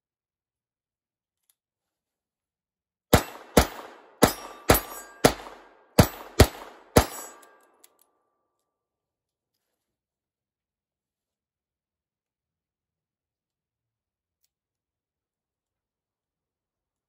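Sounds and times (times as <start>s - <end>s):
steel target ringing: 3.2s - 7.6s.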